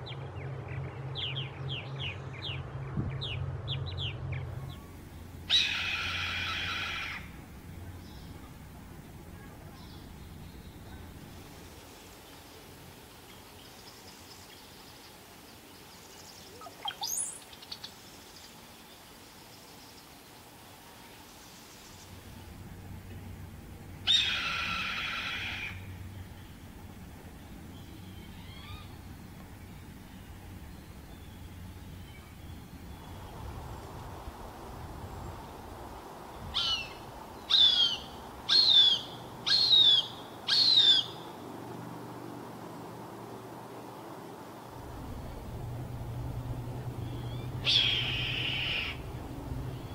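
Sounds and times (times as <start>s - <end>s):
faint bird calls: 4.6s - 11.7s, 23.1s - 33.9s, 36.4s - 41.4s, 45.0s - 49.9s
bird gurgling song rising to whistle: 36.5s - 41.2s, 47.0s - 49.9s.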